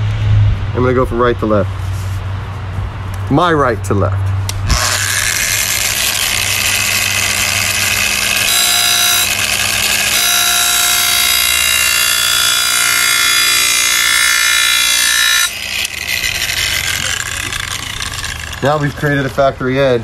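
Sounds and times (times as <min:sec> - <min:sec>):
angle grinder motor whine: 0:04.6 - 0:20.0.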